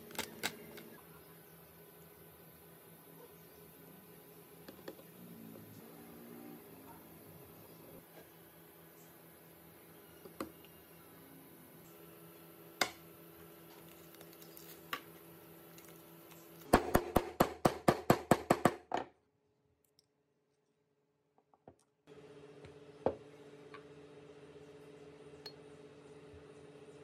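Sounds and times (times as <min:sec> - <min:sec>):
faint steady hum: 0:00.0 - 0:17.3.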